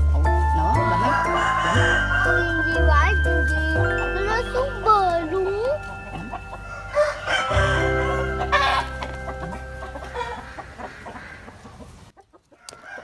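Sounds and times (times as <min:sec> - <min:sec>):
poultry clucking: 0:00.0 - 0:02.8, 0:05.8 - 0:13.0
background music: 0:00.0 - 0:11.2.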